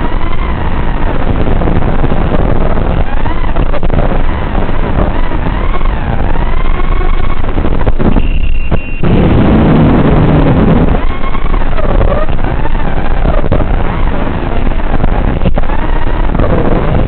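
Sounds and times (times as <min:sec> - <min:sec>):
drone motors whining: 0:00.0 - 0:17.0
heavy low rumble: 0:00.0 - 0:17.0
steady high tone: 0:08.0 - 0:12.3.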